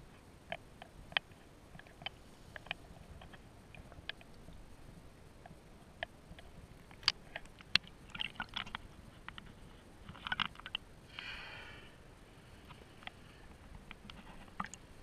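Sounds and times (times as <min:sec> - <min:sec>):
water lapping and splashing: 0:06.8 - 0:08.9
wet clicks and pops: 0:06.8 - 0:09.4.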